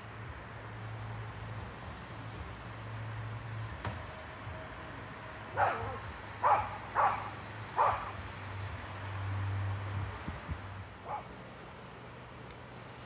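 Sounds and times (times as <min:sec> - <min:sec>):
diesel train humming: 0:00.0 - 0:13.0
dog barking: 0:05.6 - 0:08.2, 0:11.0 - 0:11.3.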